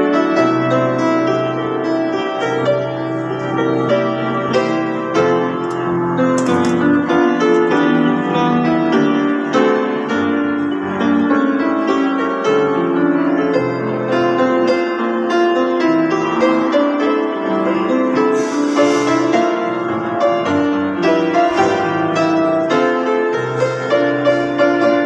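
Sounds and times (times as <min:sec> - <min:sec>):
solo grand piano: 0:00.0 - 0:25.0.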